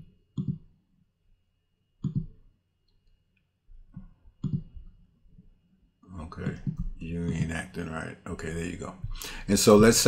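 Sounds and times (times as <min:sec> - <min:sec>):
computer mouse clicking: 0:00.0 - 0:00.7, 0:02.0 - 0:03.2, 0:03.9 - 0:05.5.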